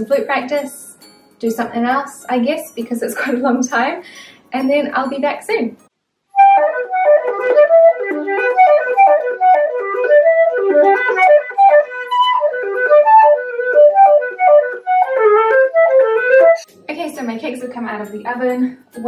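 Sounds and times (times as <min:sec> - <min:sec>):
flute playing quick melody: 0:06.4 - 0:16.7.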